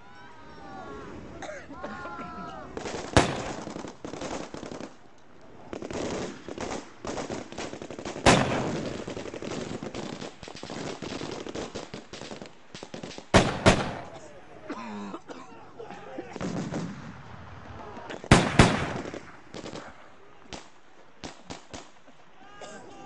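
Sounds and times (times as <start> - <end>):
loud gunshots echoing: 2.7 - 5.0, 5.8 - 14.2, 16.4 - 17.6, 18.2 - 22.0
rapid gunfire crackling: 2.7 - 14.2, 16.4 - 22.0.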